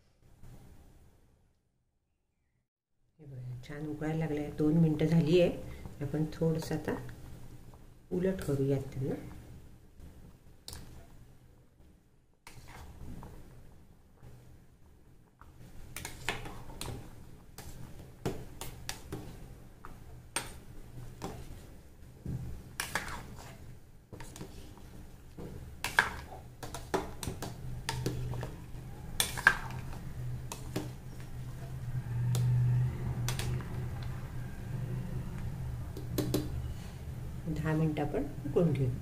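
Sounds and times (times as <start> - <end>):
metal spoon scraping a pot: 22.8 - 23.6, 27.8 - 31.4.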